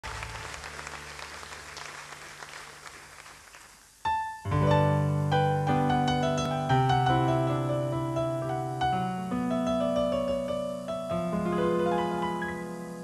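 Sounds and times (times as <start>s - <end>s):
audience applause: 0.0s - 4.0s
slow piano chords: 4.1s - 13.0s.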